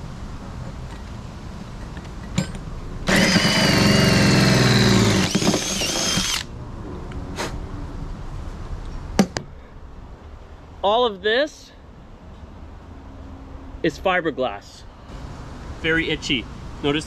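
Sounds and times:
power drill hole saw whining: 3.1 - 6.5.

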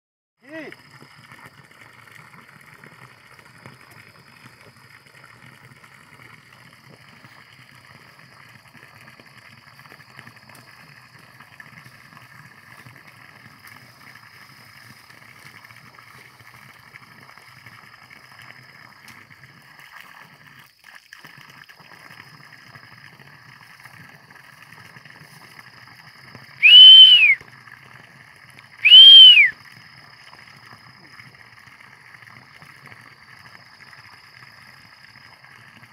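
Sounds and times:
loud whistles: 26.6 - 27.4, 28.8 - 29.6.

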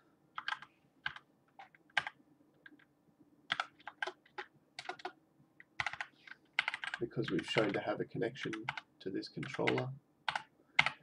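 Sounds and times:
typing on computer keyboard: 0.4 - 2.9, 3.5 - 7.8, 8.5 - 11.0.

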